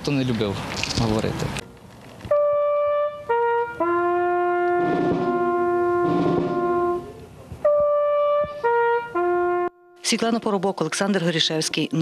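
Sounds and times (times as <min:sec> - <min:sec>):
brass instruments playing funeral music: 0:02.3 - 0:10.1.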